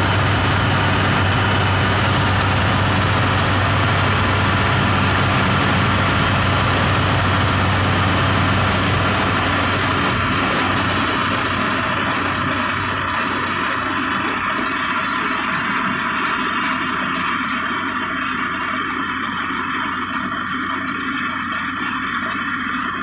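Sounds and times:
road and wind noise: 0.0s - 16.5s
car engine drone: 0.0s - 23.0s.

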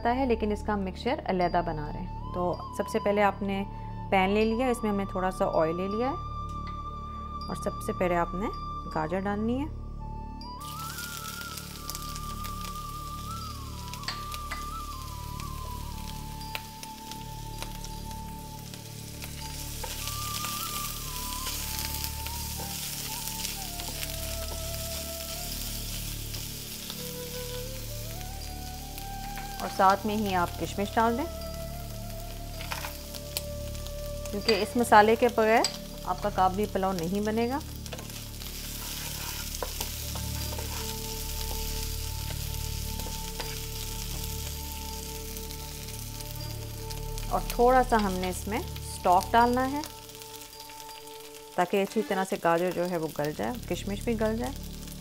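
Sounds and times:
soft melody: 0.0s - 55.0s
carrots sizzling in oil: 10.1s - 55.0s.

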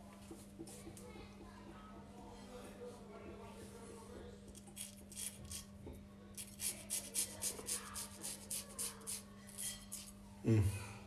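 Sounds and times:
razor scraping stubble: 4.6s - 5.7s, 6.4s - 10.1s.

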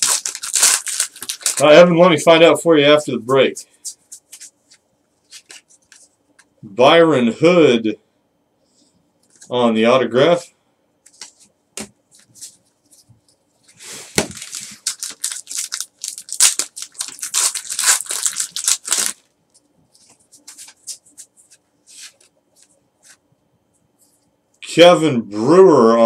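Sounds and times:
foil pack tearing and crinkling: 0.0s - 1.8s, 14.1s - 19.3s.

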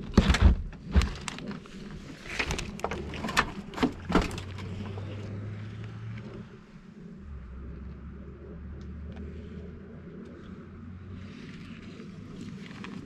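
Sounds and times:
sharp knocks and crackles: 0.0s - 5.3s
low hum: 0.5s - 13.0s.

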